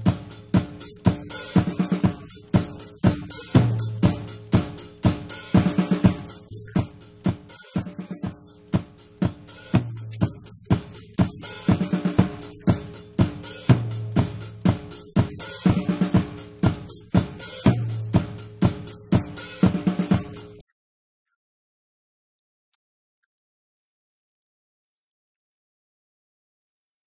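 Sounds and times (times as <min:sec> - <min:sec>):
low bass notes: 0:00.0 - 0:18.9
drum kit beat: 0:00.0 - 0:20.6.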